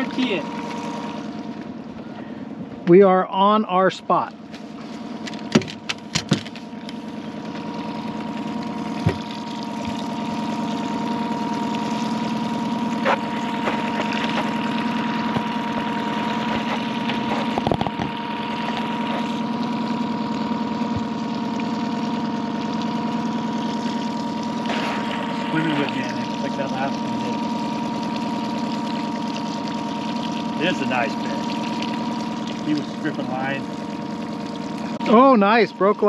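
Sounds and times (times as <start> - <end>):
outboard motor idling: 0.0 - 36.0.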